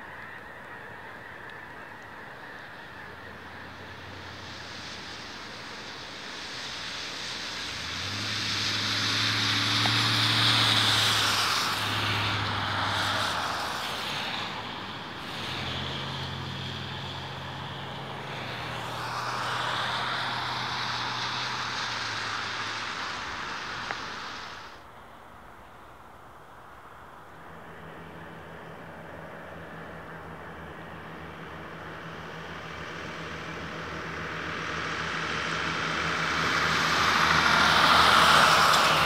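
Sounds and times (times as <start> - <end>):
passing vehicle engine hum: 0.0 - 26.2, 26.8 - 39.0.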